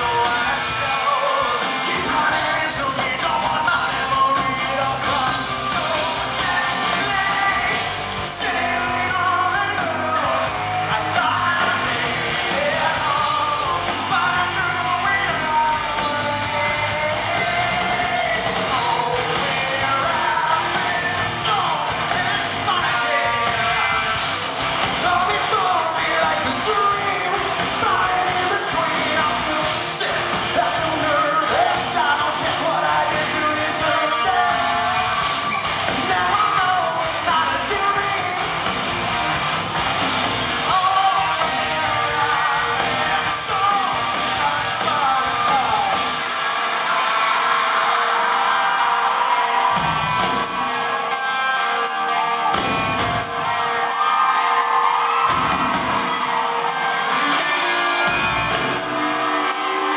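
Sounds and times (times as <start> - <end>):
man singing: 0.0 - 24.0, 25.0 - 38.6, 40.5 - 46.3
live rock band playing: 0.0 - 59.9.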